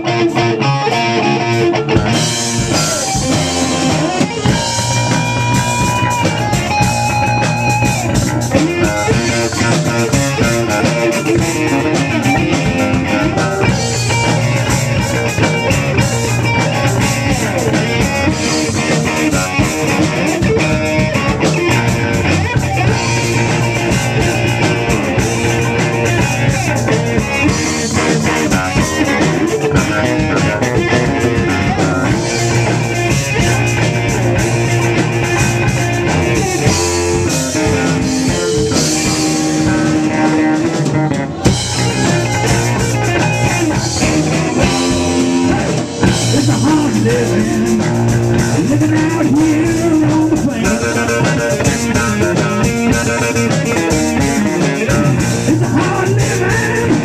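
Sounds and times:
rock band playing live: 0.0s - 57.0s.

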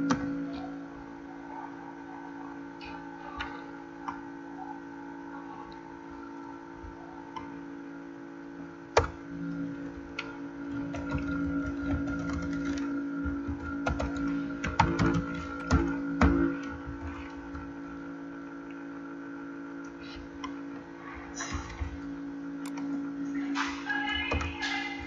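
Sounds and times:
steady hum: 0.0s - 25.0s
keyboard keystrokes: 10.7s - 16.5s.

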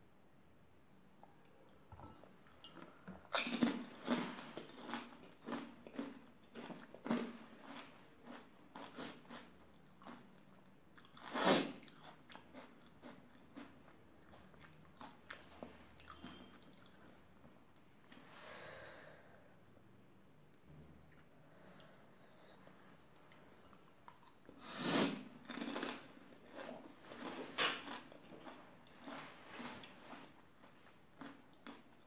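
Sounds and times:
crunchy food being chewed: 1.7s - 17.2s, 25.2s - 32.0s.

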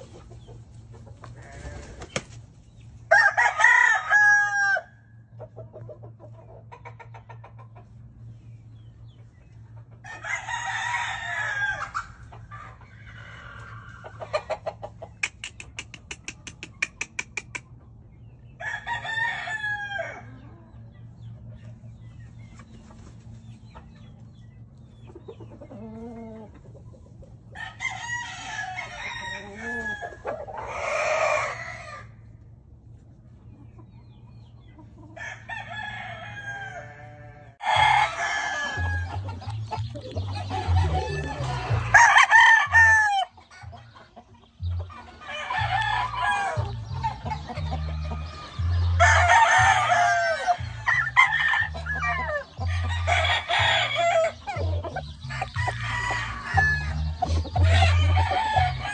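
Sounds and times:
roosters crowing: 0.0s - 2.4s, 3.0s - 5.6s, 9.8s - 17.6s, 18.4s - 20.9s, 25.1s - 26.7s, 27.3s - 32.5s, 35.0s - 58.9s
hens clucking: 0.0s - 3.0s, 5.2s - 18.2s, 19.3s - 58.9s.

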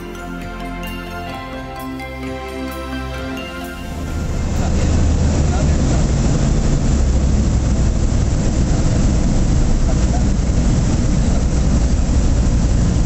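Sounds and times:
ultralight engine and propeller droning: 0.0s - 13.0s
rushing noise: 3.2s - 13.0s.

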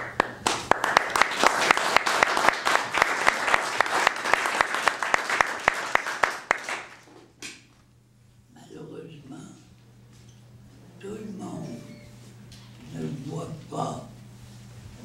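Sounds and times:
audience applauding: 0.0s - 7.1s
sharp close claps: 0.0s - 7.6s.

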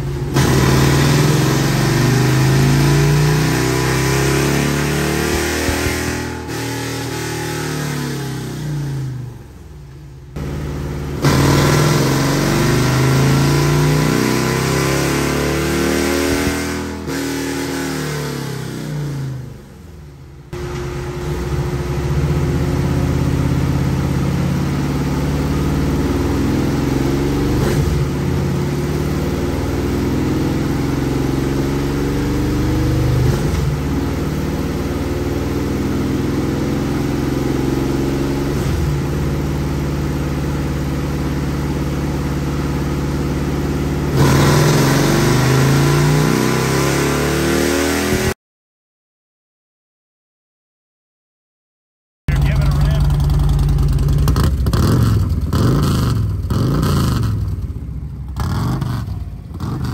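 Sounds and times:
motorcycle engine revving: 0.0s - 9.6s, 10.4s - 19.7s, 40.1s - 48.4s, 52.3s - 59.9s.

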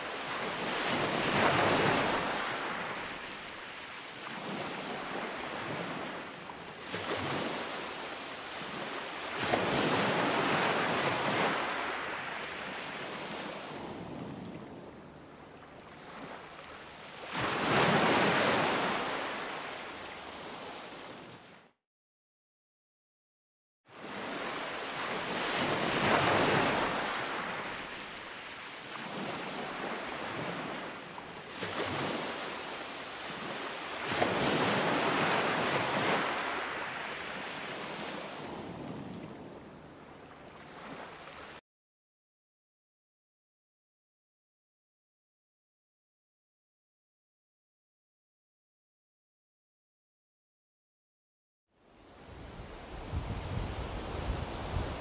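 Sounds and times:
sea waves breaking on shore: 0.0s - 21.6s, 23.9s - 41.6s, 52.0s - 55.0s.

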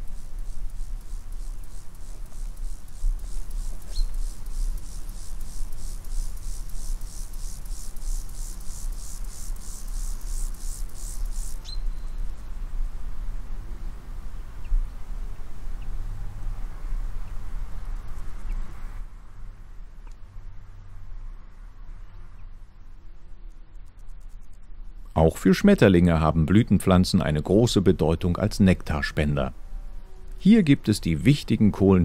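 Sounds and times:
steady low rumble: 0.0s - 7.0s
insect chirping: 0.0s - 12.5s.

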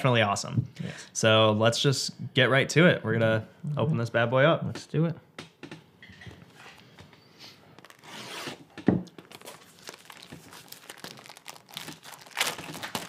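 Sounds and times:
plastic crinkling: 7.6s - 13.0s
plastic shrink wrap tearing: 7.8s - 13.0s.

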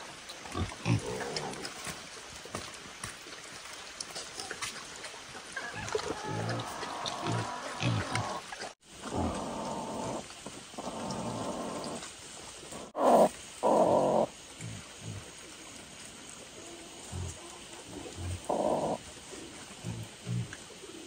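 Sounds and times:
hen growling harshly: 6.2s - 12.1s, 12.7s - 15.2s, 18.1s - 19.0s.

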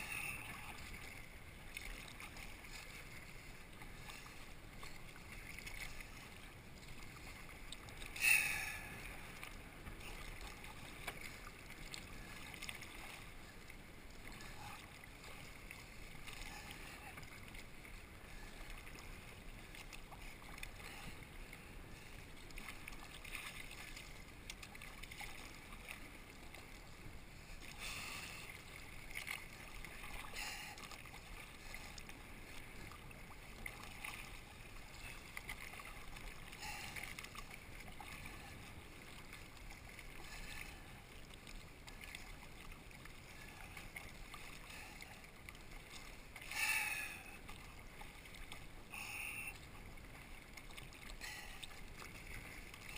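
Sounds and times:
paddle splashing: 0.0s - 52.9s
water swishing along hull: 0.0s - 52.9s.

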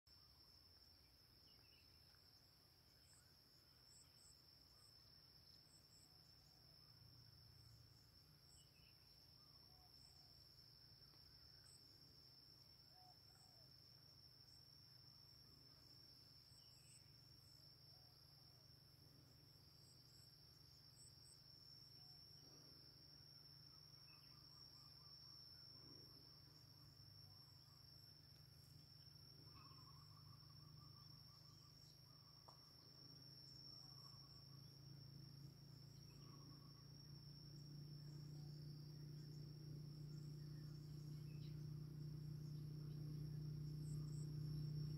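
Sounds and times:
low steady rumble: 34.0s - 44.9s.

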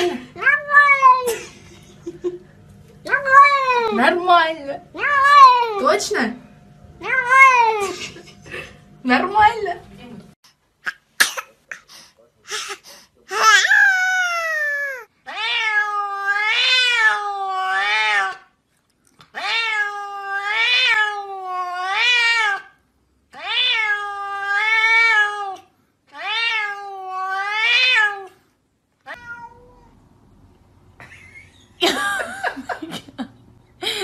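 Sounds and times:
cats meowing: 0.4s - 1.3s, 3.1s - 4.0s, 7.0s - 7.9s, 13.3s - 18.4s, 19.3s - 22.7s, 23.3s - 28.3s, 29.0s - 30.0s.

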